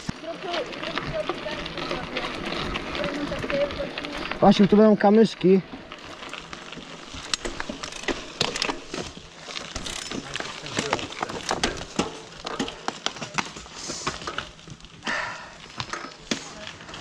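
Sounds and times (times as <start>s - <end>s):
bike rattling: 0.0s - 17.0s
tyres crunching on stones: 0.0s - 17.0s.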